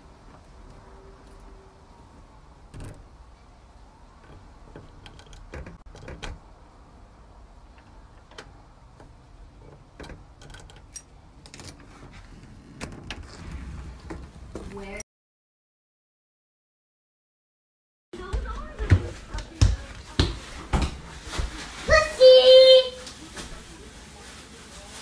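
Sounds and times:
lock clicking: 4.2s - 6.4s, 7.8s - 11.8s.

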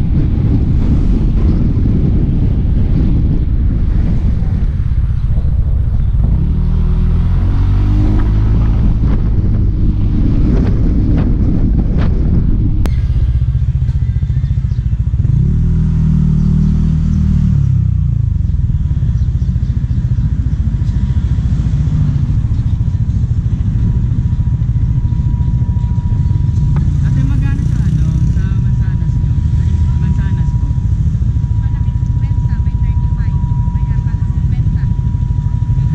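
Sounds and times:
motorcycle engine revving: 0.0s - 35.9s.

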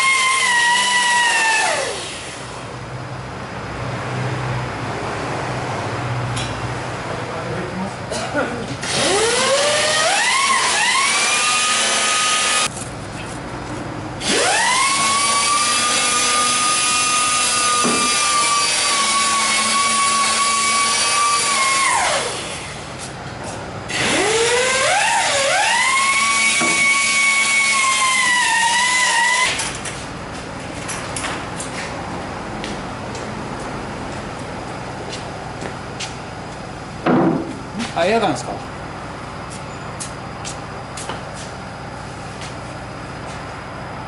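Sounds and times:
power tool motor whining: 8.8s - 12.7s, 14.2s - 22.7s.

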